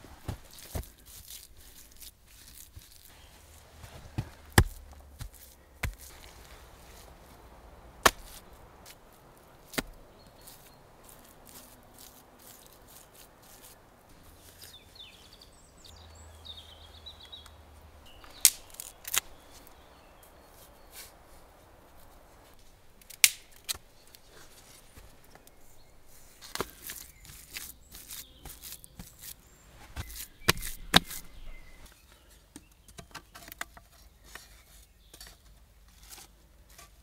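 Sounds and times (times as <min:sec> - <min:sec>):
faint outdoor background: 0:00.0 - 0:37.0
bird chirping: 0:02.9 - 0:35.3
clicks and snaps of clay and sticks: 0:18.2 - 0:19.8, 0:22.6 - 0:24.2.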